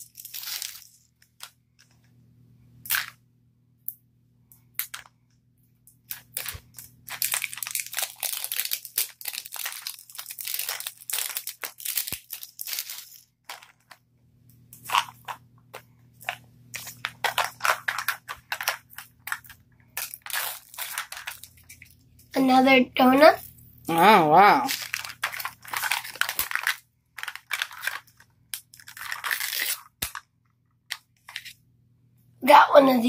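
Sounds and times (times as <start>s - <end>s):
plastic wrappers crinkling: 0.0s - 2.0s, 6.0s - 14.0s, 14.7s - 22.5s, 23.2s - 31.6s.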